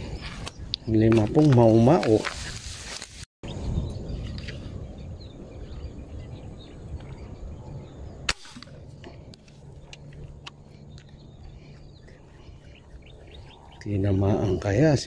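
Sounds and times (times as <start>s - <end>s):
sharp crack: 8.2s - 8.8s.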